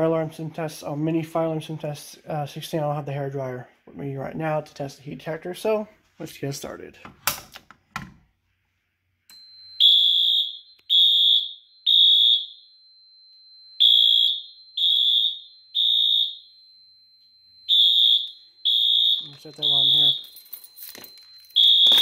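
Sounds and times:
faint steady high tone: 0:09.3 - 0:09.8, 0:19.2 - 0:22.0
fire alarm horn blasts: 0:09.4 - 0:20.4, 0:21.5 - 0:22.0.

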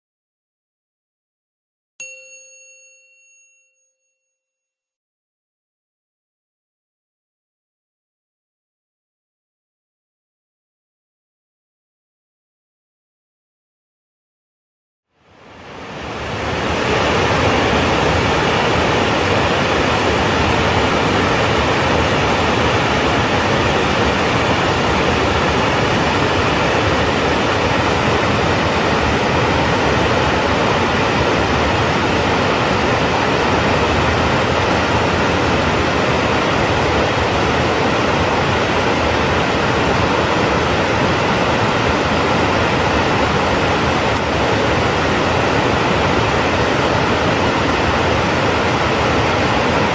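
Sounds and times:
waterfall rushing: 0:15.3 - 0:49.9.

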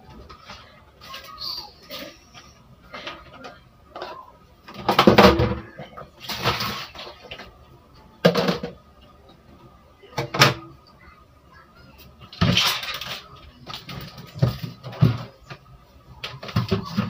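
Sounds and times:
kitchen items clattering: 0:00.0 - 0:07.6, 0:08.2 - 0:08.8, 0:12.2 - 0:15.6, 0:16.2 - 0:17.0.

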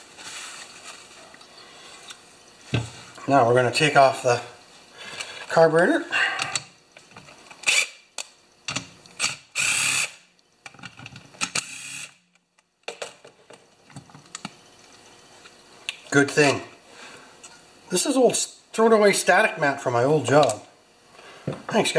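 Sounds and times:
cordless drill bursts: 0:07.6 - 0:08.0, 0:09.2 - 0:10.2, 0:11.5 - 0:12.2.

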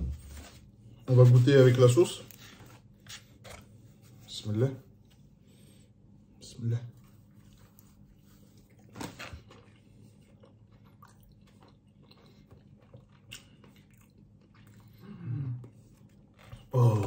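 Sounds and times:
person chewing pizza: 0:07.0 - 0:17.0.

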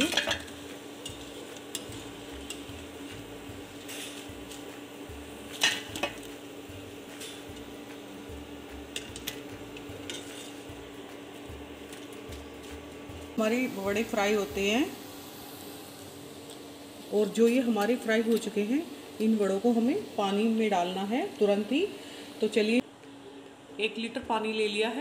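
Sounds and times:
metal utensils clinking: 0:00.0 - 0:02.7, 0:05.5 - 0:06.3, 0:08.9 - 0:10.7
steady low hum: 0:00.0 - 0:25.0.

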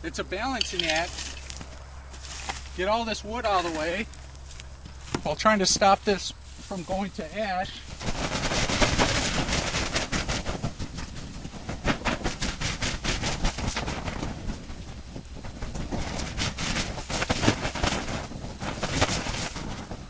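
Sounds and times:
water hissing on hot char: 0:05.6 - 0:20.0.

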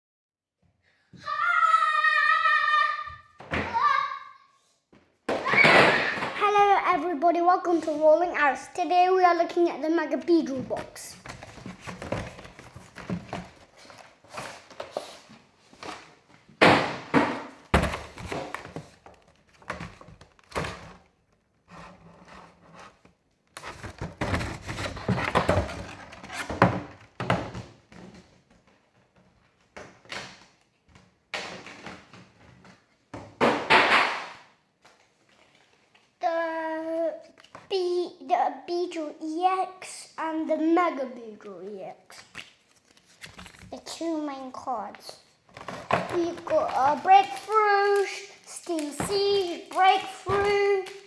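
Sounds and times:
cardboard and plastic thunks: 0:10.6 - 0:15.1, 0:15.8 - 0:21.1, 0:23.6 - 0:28.3, 0:45.5 - 0:46.6.

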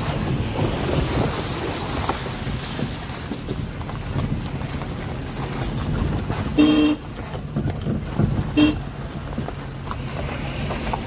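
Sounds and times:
engine and road rumble: 0:00.0 - 0:11.0
vehicle horn honking: 0:06.5 - 0:07.1, 0:08.5 - 0:08.9.

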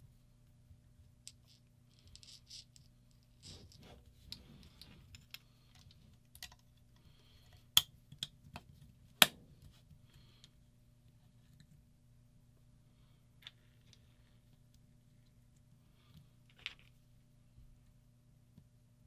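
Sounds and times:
plastic parts clicking and scraping: 0:01.3 - 0:08.9.

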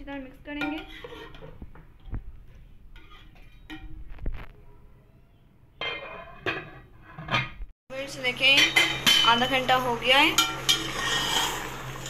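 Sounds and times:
metal spoon scraping a pot: 0:00.6 - 0:01.6, 0:02.5 - 0:04.2, 0:10.4 - 0:11.8.

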